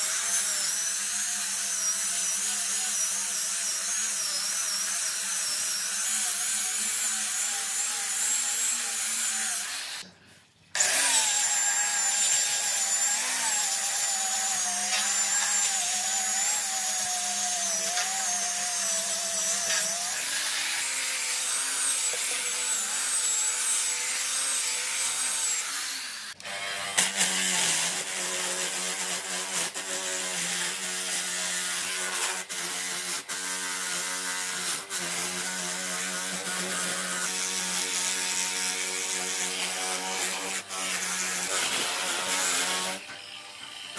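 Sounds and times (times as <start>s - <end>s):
angle grinder sanding wood: 10.8s - 43.9s.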